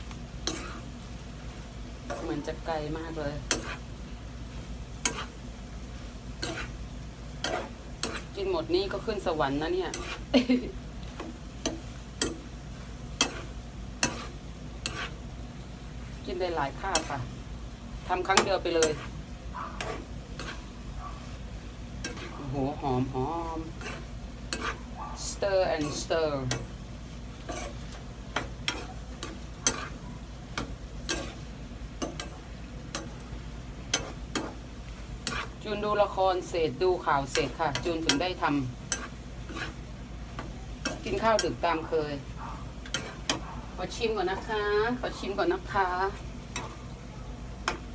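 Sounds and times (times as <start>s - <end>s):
faint frying sizzle: 0.0s - 47.9s
metal spatula scraping a pan: 0.4s - 0.9s, 2.0s - 3.9s, 4.5s - 5.4s, 6.0s - 10.3s, 11.1s - 15.3s, 16.3s - 17.3s, 18.1s - 19.2s, 19.8s - 21.4s, 22.0s - 47.0s
metal ladle clacking on pan: 3.5s - 3.8s, 11.2s - 12.5s, 14.0s - 15.0s, 28.3s - 31.4s, 32.0s - 33.2s, 33.9s - 34.6s, 40.4s - 41.6s, 42.9s - 43.4s, 47.6s - 47.9s.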